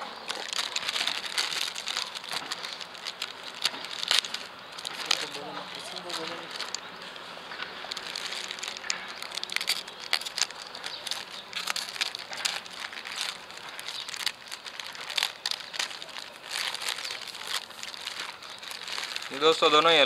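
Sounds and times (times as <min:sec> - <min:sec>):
plastic mailer bag crinkling: 0:00.0 - 0:20.0.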